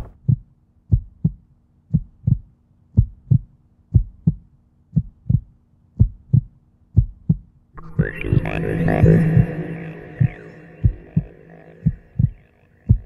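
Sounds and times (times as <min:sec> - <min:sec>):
heartbeat thumps: 0:00.0 - 0:13.0.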